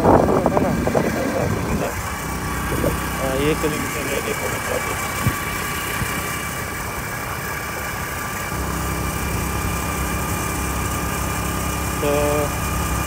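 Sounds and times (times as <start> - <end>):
wind noise on microphone: 0.0 - 3.2, 5.0 - 7.0
motorcycle engine running: 0.0 - 13.0.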